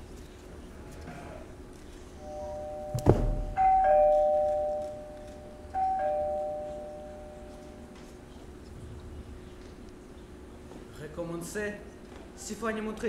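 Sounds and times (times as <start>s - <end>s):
two-tone doorbell chime: 2.2s - 7.9s
sharp knock: 3.0s - 3.6s.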